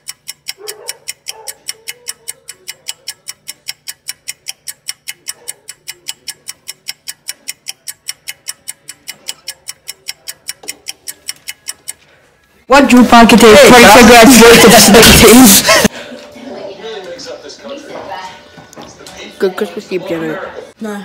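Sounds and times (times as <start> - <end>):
rapid even ticking: 0.0 - 12.1.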